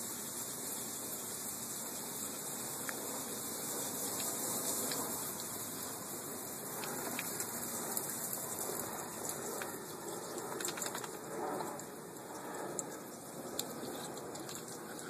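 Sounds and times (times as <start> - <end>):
water spattering on wooden deck: 3.5 - 11.2
light ticks and splashes: 3.9 - 6.0, 6.7 - 15.0.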